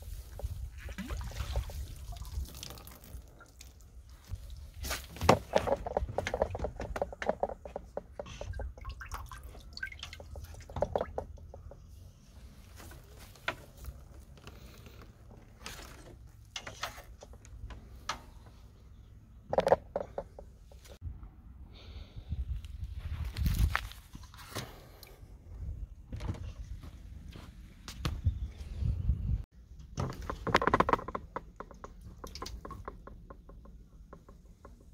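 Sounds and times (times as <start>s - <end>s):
water dripping and trickling: 0.0s - 4.9s, 5.7s - 11.9s, 31.4s - 34.9s
plastic knocks and clicks: 5.2s - 8.5s, 30.0s - 34.9s.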